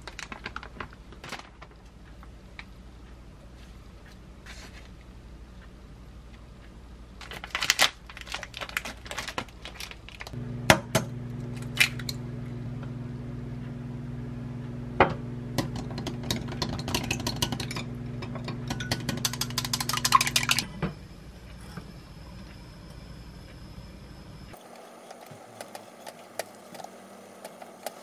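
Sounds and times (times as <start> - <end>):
plastic pack crinkling: 0.0 - 1.9, 7.2 - 10.4
steady low hum: 8.4 - 27.8
whisking taps against glass: 15.6 - 20.6.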